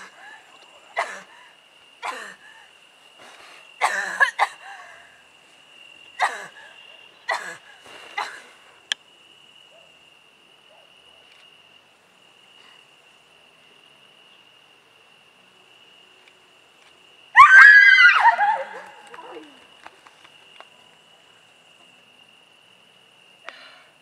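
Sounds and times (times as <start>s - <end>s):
high cricket trill: 0.0s - 24.0s.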